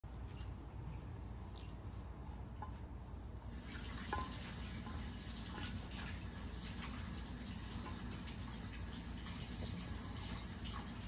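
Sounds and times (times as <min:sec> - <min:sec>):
kitchen tap running: 0:03.5 - 0:11.0.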